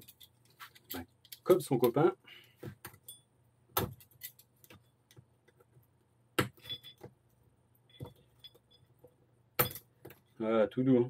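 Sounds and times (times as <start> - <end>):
metal parts clinking: 0.0 - 2.0, 3.9 - 4.8.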